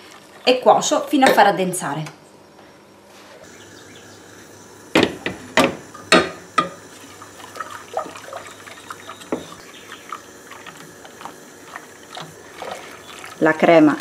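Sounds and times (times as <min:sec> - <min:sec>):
utensil knocking against a pot: 0:05.0 - 0:06.8.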